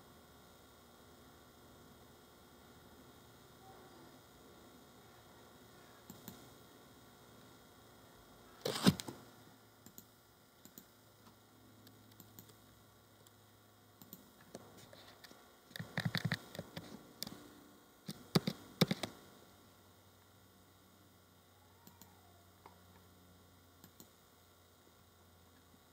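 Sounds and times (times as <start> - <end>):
mouse clicks: 6.0 - 6.4, 9.8 - 10.9, 11.8 - 12.6, 14.0 - 14.6, 15.7 - 17.4, 18.1 - 19.1, 21.8 - 22.8, 23.8 - 24.2
keyboard key presses: 15.8 - 16.9, 18.1 - 19.1.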